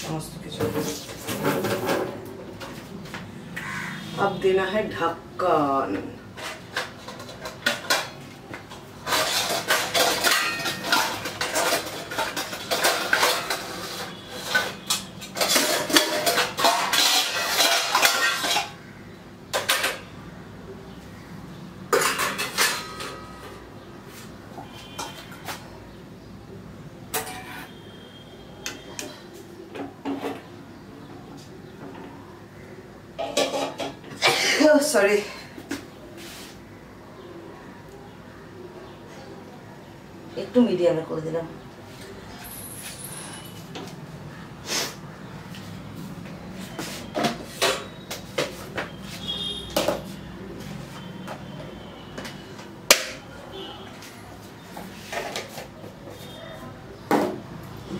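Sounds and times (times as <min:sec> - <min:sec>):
containers and utensils clinking: 0:00.0 - 0:02.9, 0:06.0 - 0:18.9, 0:21.8 - 0:23.8, 0:27.1 - 0:29.2, 0:33.2 - 0:35.0, 0:46.6 - 0:53.8, 0:54.4 - 0:56.4
metal pot lid and tongs clanking: 0:09.0 - 0:18.8, 0:21.9 - 0:23.5.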